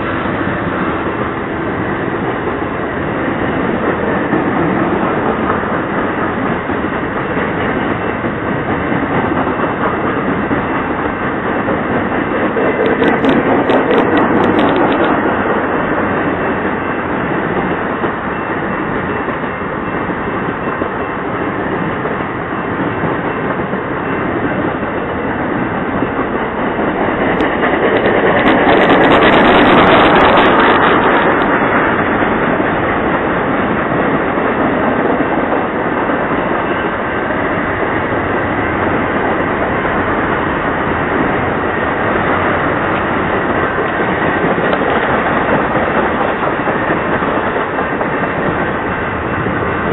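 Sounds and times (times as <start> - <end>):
train wheels on rails: 0.0 - 49.9.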